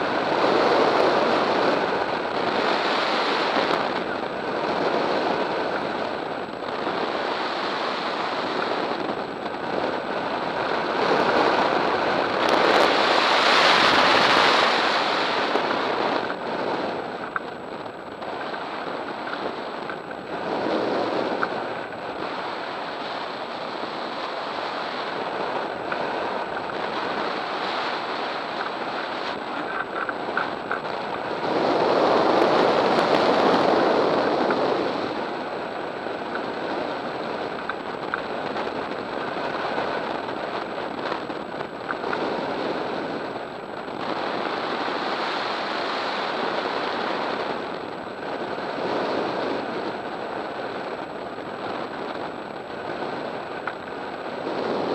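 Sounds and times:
airflow rushing over microphone: 0:00.0 - 0:54.9.

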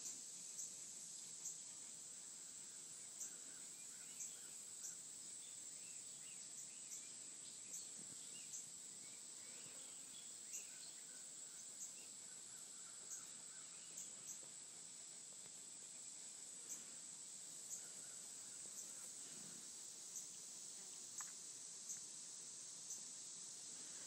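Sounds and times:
faint bird chirps: 0:02.6 - 0:14.8, 0:17.6 - 0:22.1.

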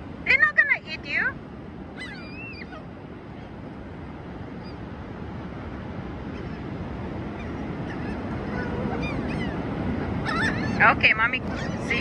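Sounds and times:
surf rushing: 0:00.0 - 0:12.0
gulls calling: 0:01.8 - 0:03.7, 0:06.1 - 0:12.0.

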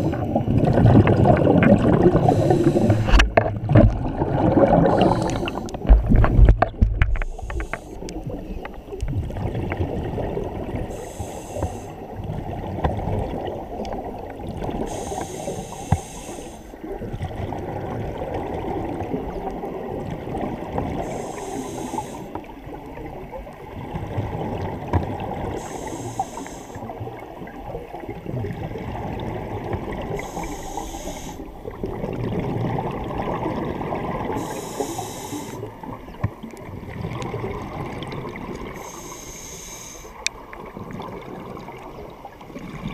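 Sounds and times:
exhaled bubbles gurgling: 0:00.0 - 0:42.9
scuba regulator hiss: 0:02.2 - 0:03.1, 0:04.9 - 0:05.7, 0:07.2 - 0:08.0, 0:10.9 - 0:12.0, 0:14.9 - 0:16.8, 0:21.0 - 0:22.4, 0:25.6 - 0:26.9, 0:30.1 - 0:31.5, 0:34.3 - 0:35.7, 0:38.8 - 0:40.2.

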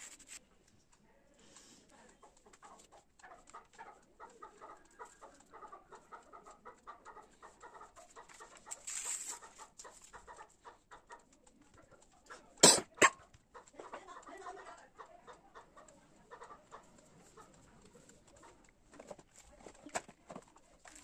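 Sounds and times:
paper rustling: 0:00.0 - 0:00.4, 0:08.2 - 0:10.1.

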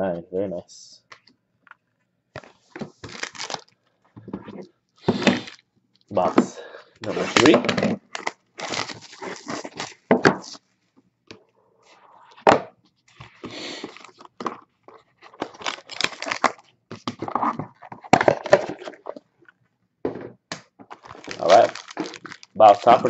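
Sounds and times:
plastic wrap crinkling and tearing: 0:02.4 - 0:03.8, 0:05.1 - 0:05.6, 0:07.0 - 0:10.1, 0:13.6 - 0:19.2, 0:20.8 - 0:23.0.

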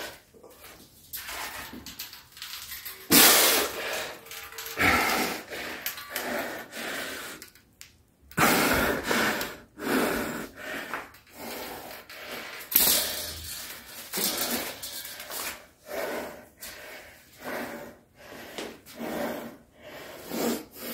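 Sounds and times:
man breathing hard: 0:03.4 - 0:07.6, 0:08.3 - 0:13.1, 0:14.1 - 0:20.9.

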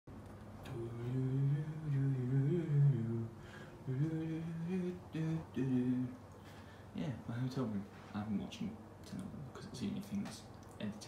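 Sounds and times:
man humming: 0:00.6 - 0:06.2.

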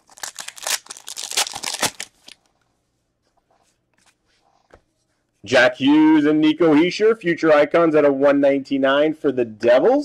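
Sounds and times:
foil wrapper tearing open: 0:00.0 - 0:02.4.

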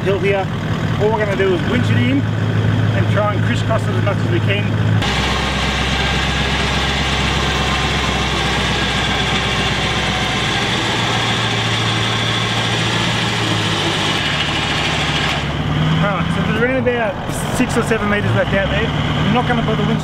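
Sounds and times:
vehicle engine idling: 0:00.0 - 0:20.0
electric winch running: 0:05.0 - 0:15.7.

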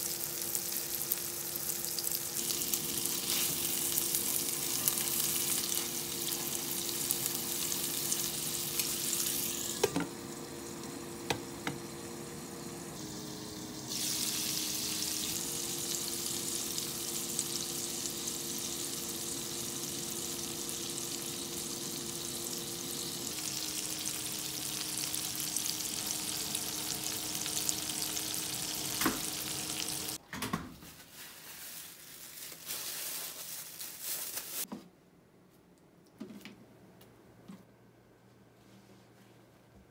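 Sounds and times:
meat sizzling in a frying pan: 0:00.0 - 0:09.9, 0:13.0 - 0:30.2
electrical hum: 0:00.0 - 0:30.2.

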